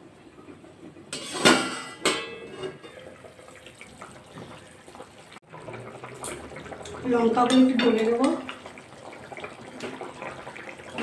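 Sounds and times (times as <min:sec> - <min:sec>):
gravy simmering and bubbling: 0:00.0 - 0:11.0
metal lid clanking on wok: 0:01.1 - 0:03.0.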